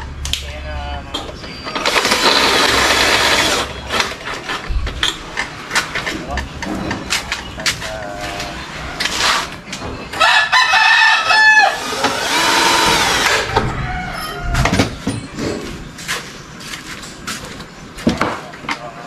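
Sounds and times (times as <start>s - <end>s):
rooster crowing: 10.2s - 15.0s.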